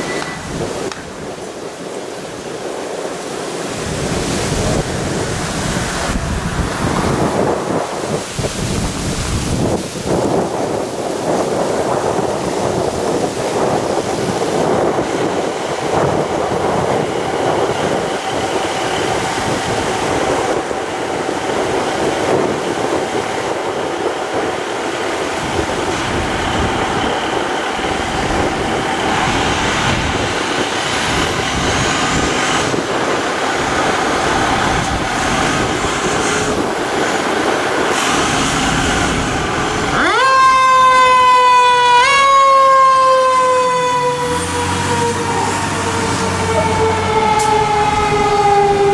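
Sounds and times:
fire truck engine rumble: 0:00.0 - 0:48.9
electronic siren wailing: 0:39.9 - 0:48.9.

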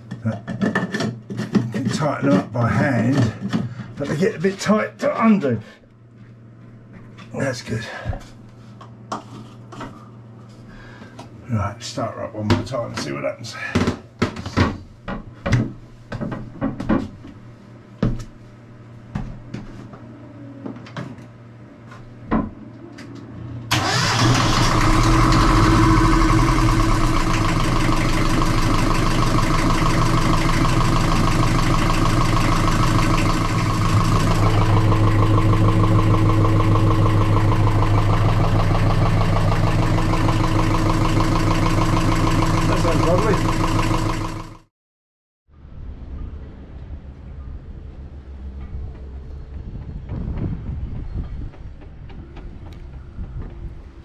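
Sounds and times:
diesel engine running: 0:23.7 - 0:44.7.

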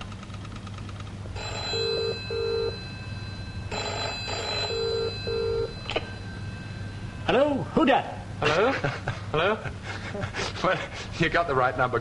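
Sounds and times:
faint rapid clicks: 0:00.0 - 0:01.1
telephone ringing: 0:01.3 - 0:07.4.

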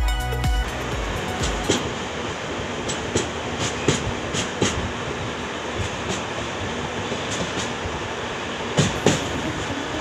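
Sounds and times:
train wheels rumbling: 0:00.2 - 0:10.0
wheels clicking over rail joints: 0:02.7 - 0:08.0, 0:08.6 - 0:10.0.

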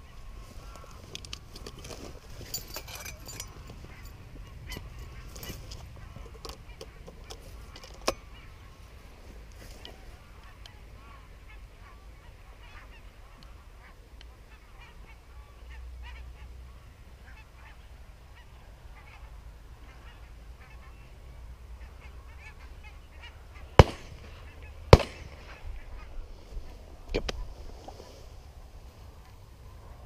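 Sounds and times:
geese honking: 0:09.8 - 0:26.8
shotgun shots: 0:23.8 - 0:25.6.

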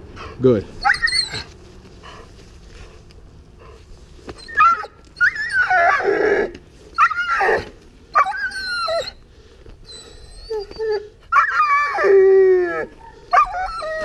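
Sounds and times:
puppy whining and yipping: 0:00.8 - 0:01.5, 0:04.3 - 0:09.2, 0:09.8 - 0:14.0.

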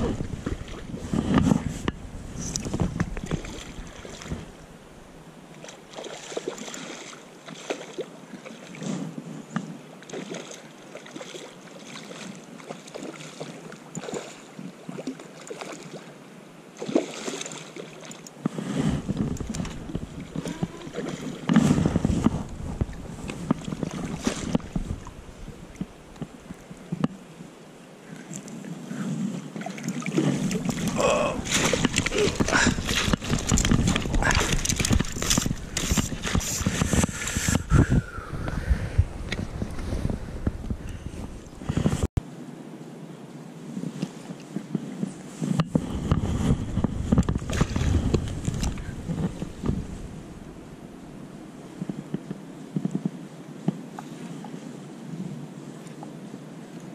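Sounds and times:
water sloshing: 0:00.0 - 0:04.7, 0:05.5 - 0:08.9, 0:10.0 - 0:16.1, 0:16.8 - 0:27.1, 0:29.4 - 0:37.7, 0:46.8 - 0:51.2
wind buffeting microphone: 0:00.0 - 0:05.2, 0:18.6 - 0:27.1, 0:30.1 - 0:42.2, 0:44.6 - 0:53.2.

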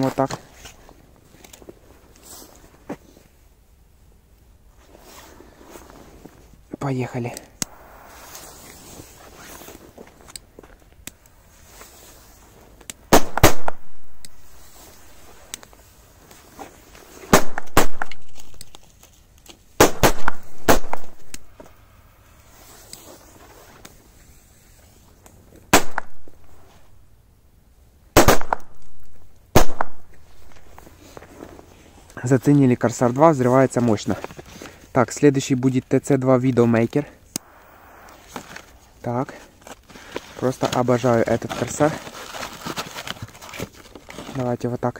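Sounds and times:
firecrackers exploding: 0:07.6 - 0:10.0, 0:13.1 - 0:14.7, 0:17.2 - 0:18.6, 0:19.8 - 0:21.5, 0:25.7 - 0:26.6, 0:28.1 - 0:30.7, 0:37.4 - 0:39.0.

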